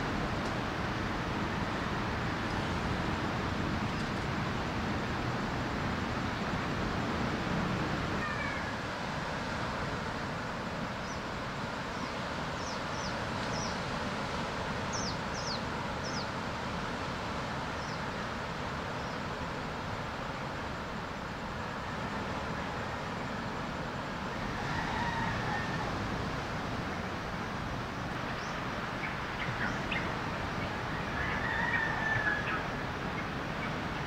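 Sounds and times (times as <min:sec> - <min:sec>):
surf washing on beach: 0:00.0 - 0:34.0
small birds chirping: 0:11.9 - 0:13.8, 0:14.9 - 0:16.4, 0:17.8 - 0:18.1, 0:28.2 - 0:31.4.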